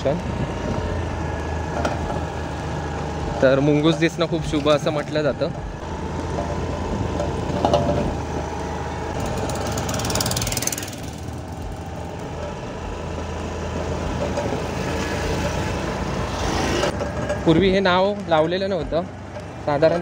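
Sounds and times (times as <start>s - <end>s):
vehicles passing by: 0.0s - 20.0s
wind noise: 5.6s - 8.5s
motorbike engine running: 5.6s - 20.0s.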